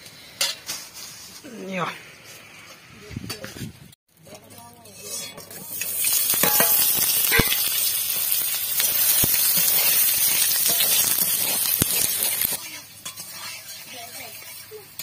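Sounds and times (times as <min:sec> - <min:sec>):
metal spatula scraping pan: 0:04.7 - 0:15.0
cheese sizzling in hot oil: 0:04.8 - 0:15.0.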